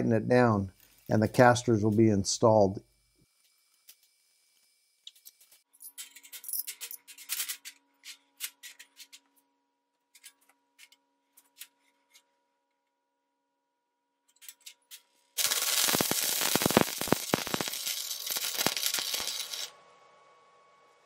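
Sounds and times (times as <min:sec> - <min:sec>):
welder arc crackling: 0:15.4 - 0:19.7.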